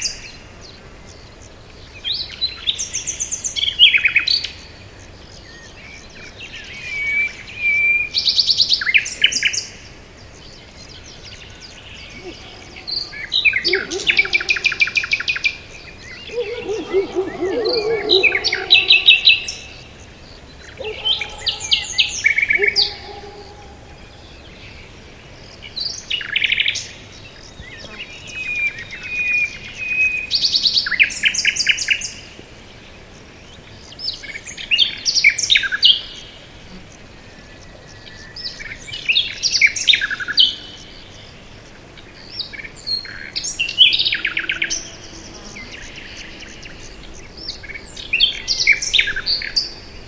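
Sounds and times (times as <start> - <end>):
songbirds trilling and chirping: 0.0 - 50.0
lower warbling bird call: 11.4 - 24.5.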